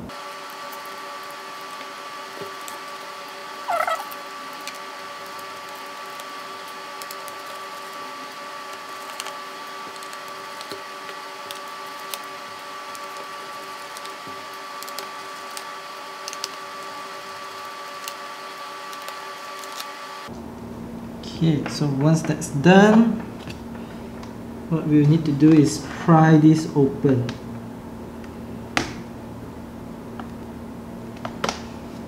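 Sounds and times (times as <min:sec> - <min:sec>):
steady high and middle hum: 0:19.9 - 0:32.0.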